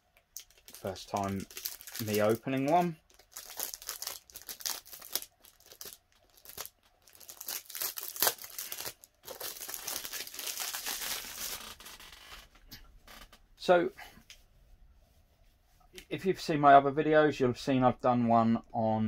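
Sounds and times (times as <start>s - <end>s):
plastic wrapping crinkling and tearing: 0.3s - 13.2s.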